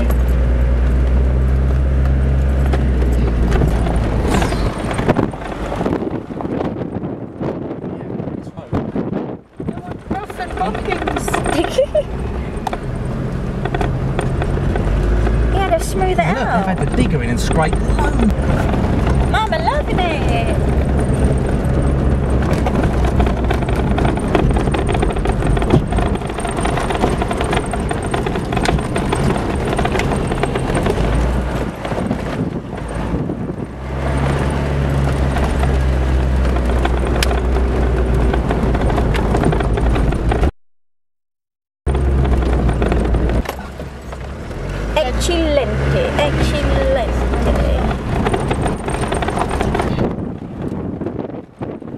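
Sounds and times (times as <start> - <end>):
knocks and rattles: 0.0 - 7.4, 8.7 - 40.5, 41.9 - 51.9
car engine drone: 0.0 - 40.5, 41.9 - 51.9
tyres crunching over stones: 9.6 - 33.0.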